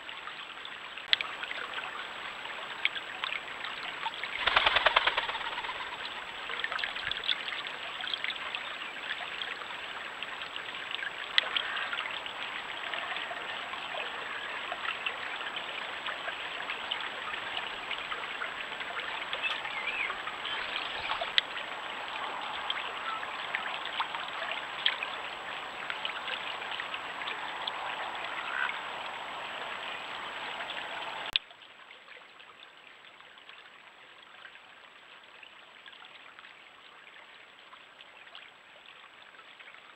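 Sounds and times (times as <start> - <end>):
stream babbling over stones: 0.0 - 39.9.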